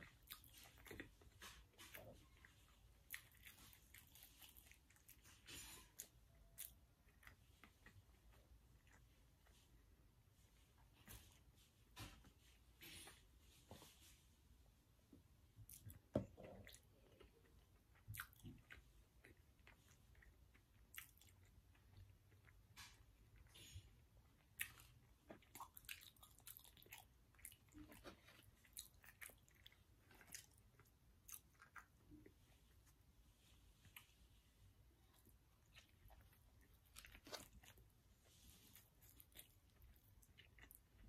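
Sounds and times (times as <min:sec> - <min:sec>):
soft chewing: 0:00.0 - 0:41.0.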